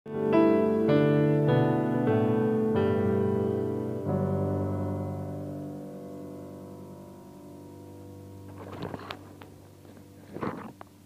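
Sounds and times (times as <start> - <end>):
piano chords: 0.1 - 11.0.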